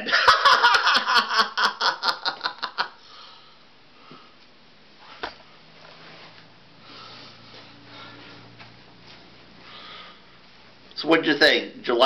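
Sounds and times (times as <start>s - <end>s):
man laughing: 0.0s - 3.0s.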